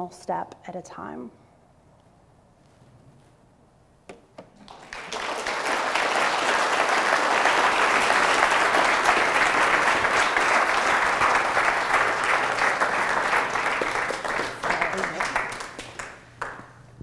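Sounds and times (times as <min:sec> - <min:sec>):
audience applauding: 0:04.6 - 0:16.8.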